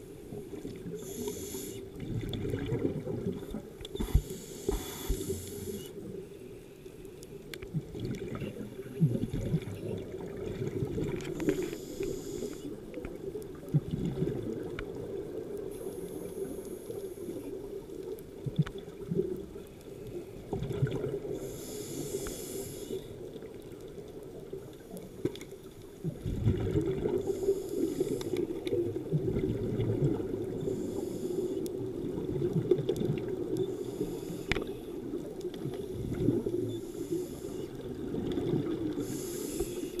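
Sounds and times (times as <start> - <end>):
scuba exhale bubbling: 0.0 - 6.2, 7.6 - 23.7, 26.0 - 40.0
low underwater rumble: 7.7 - 11.4.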